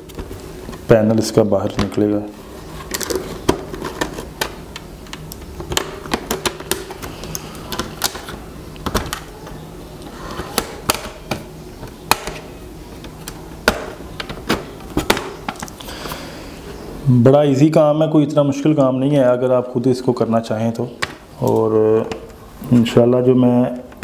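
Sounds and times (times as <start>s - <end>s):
plastic clips clicking and popping: 3.0s - 9.3s.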